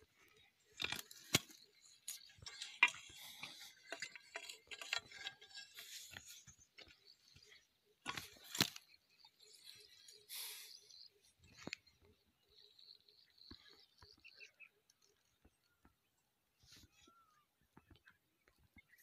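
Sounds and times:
hoe scraping stony soil: 0.6 - 10.8.

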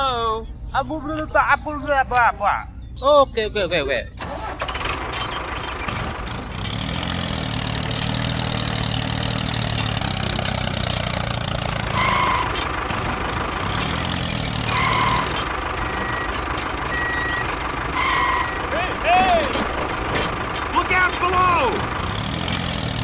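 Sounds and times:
tractor engine idling: 0.1 - 2.9, 4.1 - 23.0
short beeps: 0.4 - 4.2.

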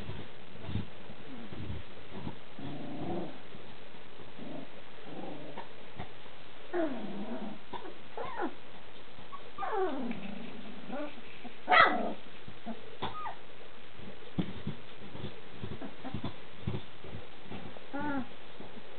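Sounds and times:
puppies whining: 7.8 - 8.6, 9.3 - 10.1, 13.0 - 13.4, 17.9 - 18.3.

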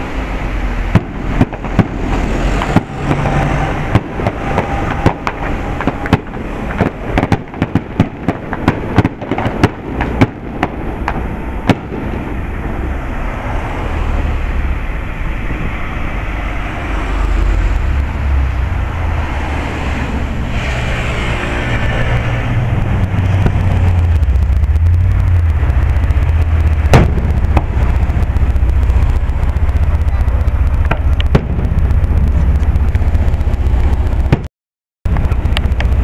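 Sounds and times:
fireworks popping and crackling: 0.0 - 13.8, 21.7 - 34.5, 35.1 - 36.0
low rumble: 0.0 - 34.5, 35.1 - 36.0.

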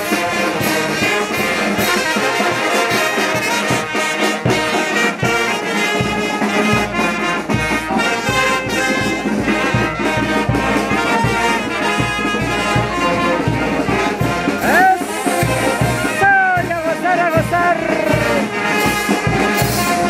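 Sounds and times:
brass band playing dance music: 0.0 - 20.0
steady drum beat: 0.0 - 20.0
trumpets and trombones: 0.0 - 20.0.

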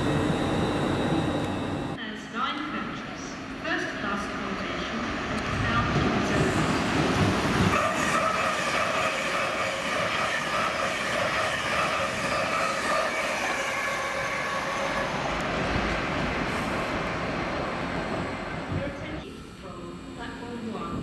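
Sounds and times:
high whining tones: 0.0 - 2.0
train rumbling: 0.0 - 2.0, 4.2 - 21.0.

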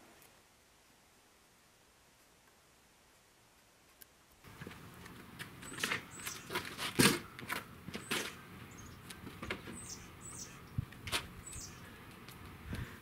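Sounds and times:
small birds chirping: 5.0 - 12.9.

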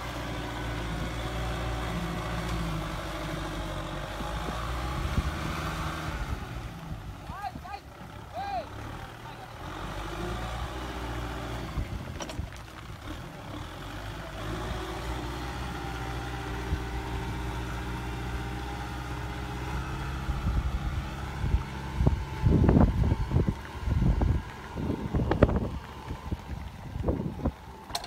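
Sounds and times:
tractor diesel engine running: 0.0 - 28.0
wind buffeting microphone: 20.3 - 28.0.

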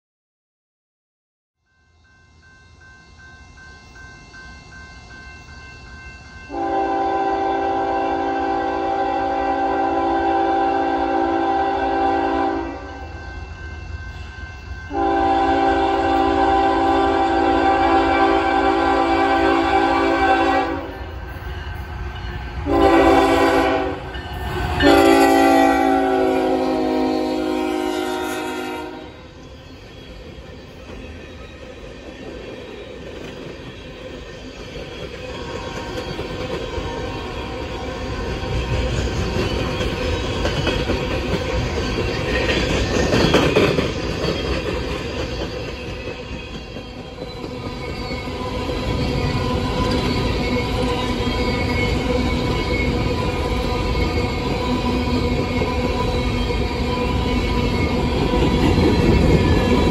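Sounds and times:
train rumbling: 2.8 - 59.9
locomotive air horn: 6.5 - 13.1, 14.9 - 21.0, 22.6 - 29.3
wheels squealing: 29.4 - 59.9
wheels clacking over rail joints: 38.1 - 59.9.

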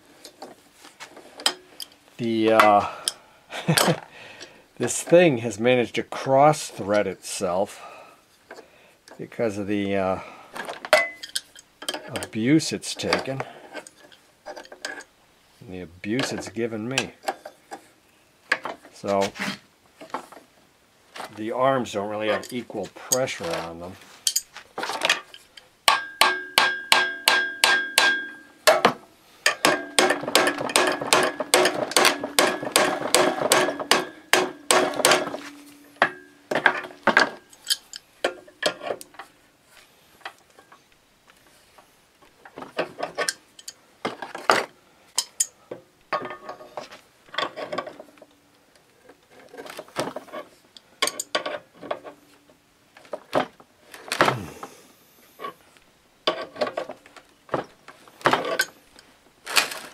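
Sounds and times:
tool clatter: 0.2 - 4.1, 10.6 - 15.1, 22.2 - 39.3, 42.4 - 48.3, 49.1 - 52.2, 56.3 - 59.9
hammer striking metal with ring: 25.9 - 28.5.

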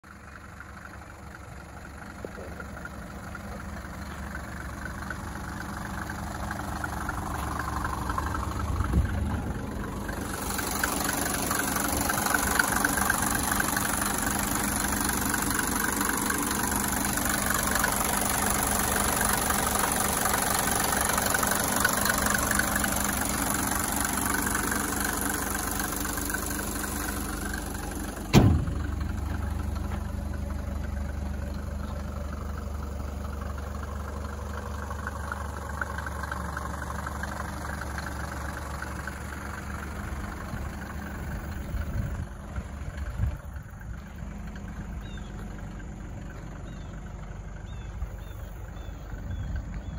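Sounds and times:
diesel engine idling: 0.0 - 49.9
car hood slamming shut: 28.3 - 29.0.

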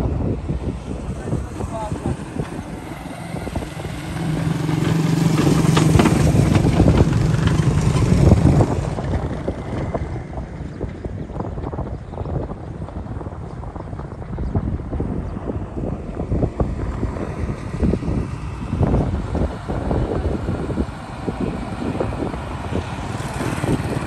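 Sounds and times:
truck diesel engine passing: 0.0 - 11.2, 15.5 - 24.0
truck knocks and rattles: 4.2 - 11.9.

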